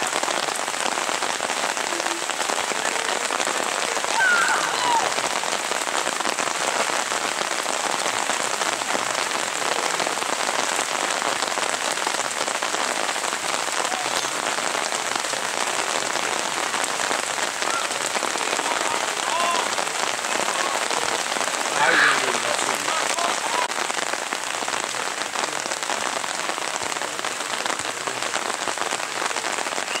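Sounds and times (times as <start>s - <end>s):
rain falling: 0.0s - 30.0s
person shouting: 4.0s - 5.2s, 17.6s - 19.7s, 21.7s - 23.7s.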